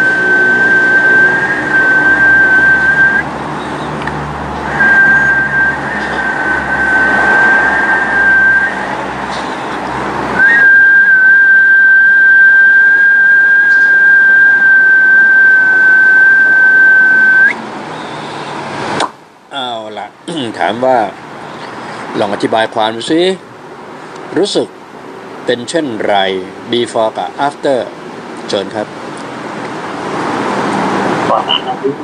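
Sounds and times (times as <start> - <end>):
high whistle-like tone: 0.0 - 4.0, 4.6 - 18.5.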